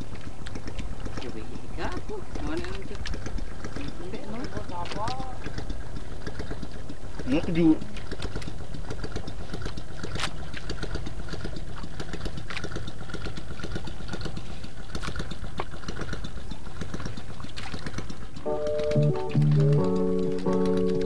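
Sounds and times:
small boat engine idling: 0:00.0 - 0:21.0
faint clicks: 0:17.1 - 0:21.0.

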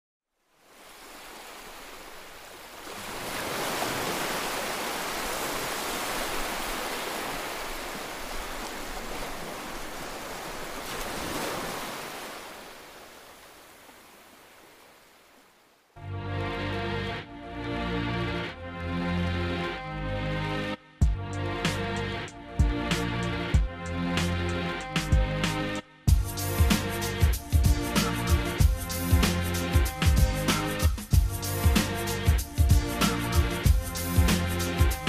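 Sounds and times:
music with a beat: 0:21.0 - 0:35.0.

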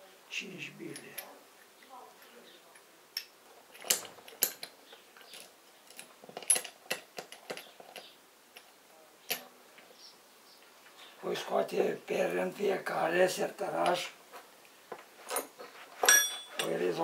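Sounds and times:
metal parts clicking and clinking: 0:03.2 - 0:08.7, 0:15.3 - 0:16.8.

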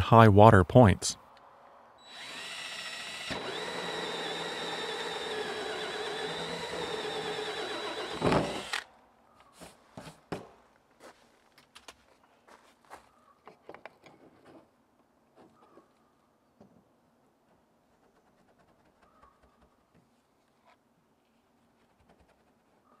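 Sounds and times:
cordless drill motor whine: 0:02.0 - 0:08.9.

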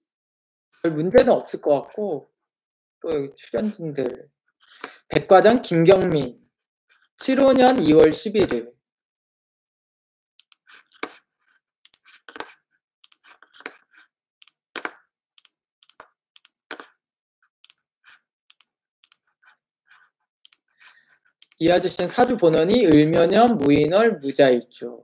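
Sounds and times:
computer keyboard and mouse clicking: 0:05.5 - 0:05.7, 0:14.4 - 0:16.9, 0:21.4 - 0:21.6, 0:23.7 - 0:24.2.

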